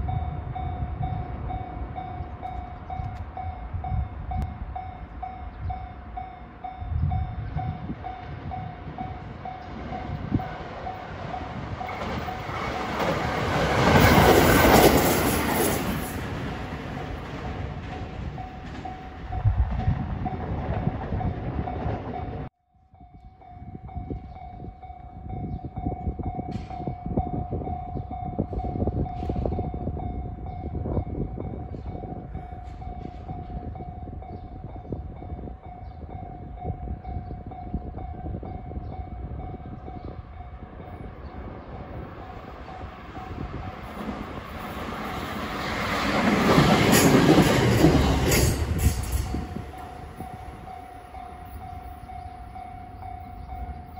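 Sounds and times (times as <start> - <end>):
electric train approaching: 0.0 - 53.9
level crossing alarm ringing: 48.8 - 53.9.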